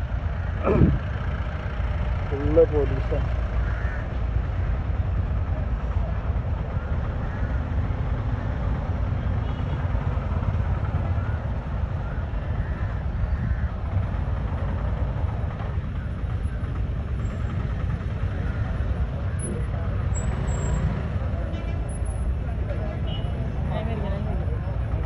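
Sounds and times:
road traffic rumble: 0.0 - 25.0
faint crowd voices: 17.6 - 25.0.

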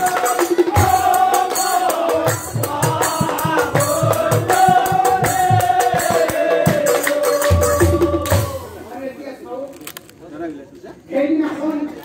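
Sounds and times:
large drums beating: 0.0 - 8.9
men chanting in unison: 0.0 - 8.9.

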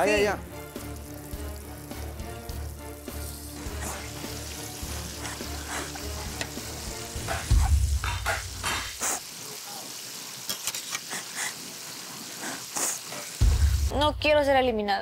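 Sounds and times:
background music: 0.0 - 9.0, 13.4 - 15.0
potatoes sizzling in hot oil: 0.0 - 14.0.

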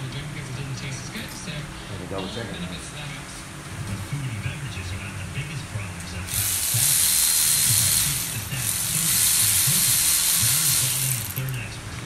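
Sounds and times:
power ratchet running: 6.3 - 11.6.

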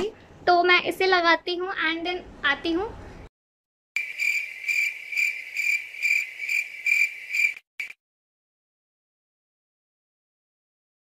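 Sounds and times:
cricket chirping: 4.0 - 8.0.

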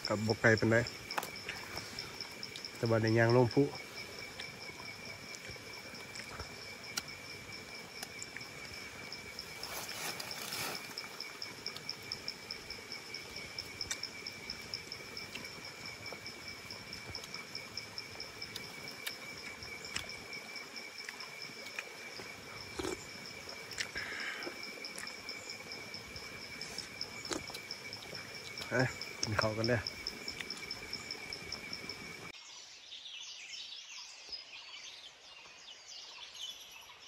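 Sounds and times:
insects trilling: 0.0 - 32.4
rustle: 9.2 - 12.2.

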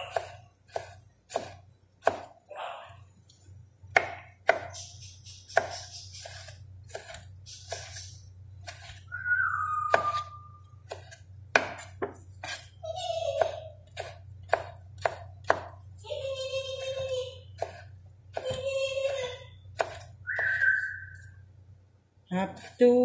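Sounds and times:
knife chopping vegetables: 0.0 - 2.4, 3.9 - 20.8, 22.5 - 23.0
parrot whistle: 9.1 - 10.6, 20.2 - 21.4.

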